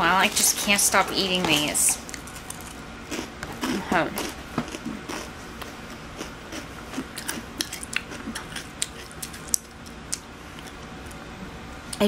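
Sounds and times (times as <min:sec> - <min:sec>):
cereal being chewed: 0:02.1 - 0:11.2.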